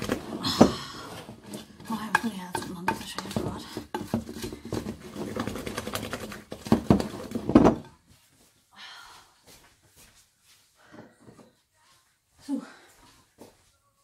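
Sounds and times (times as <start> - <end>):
wooden spoon scraping dough in bowl: 1.1 - 7.4.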